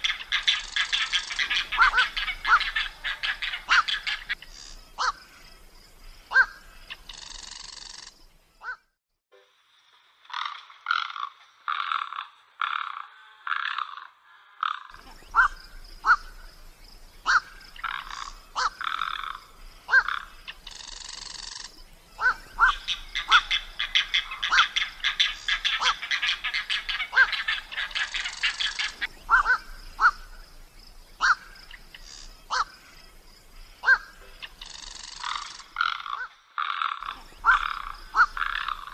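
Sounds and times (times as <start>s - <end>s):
rasping animal calls: 0.0s - 5.2s, 10.3s - 16.4s, 17.2s - 30.3s, 33.8s - 38.9s
animal calling: 0.0s - 5.4s, 6.3s - 8.9s, 10.3s - 16.5s, 17.2s - 30.4s, 31.2s - 38.9s.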